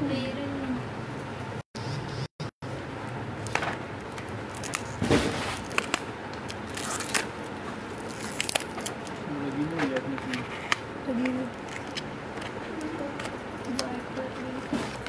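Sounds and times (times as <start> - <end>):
packaging crackling and rustling: 3.5 - 9.2.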